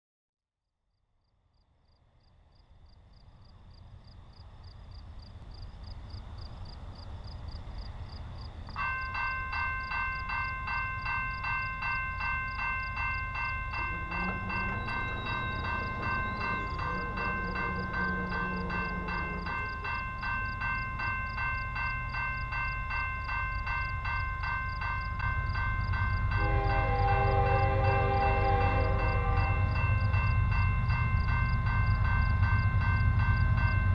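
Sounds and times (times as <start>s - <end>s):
crickets chirping: 1.2s - 33.9s
train rumbling: 3.0s - 33.9s
railroad crossing bell ringing: 8.8s - 33.9s
deep loud tone: 13.8s - 20.2s.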